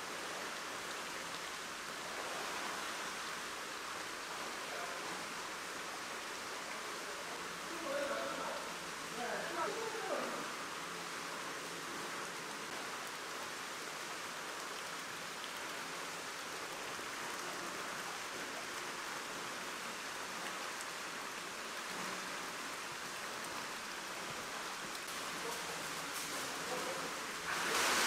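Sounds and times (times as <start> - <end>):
water rushing in tank: 24.6 - 28.0.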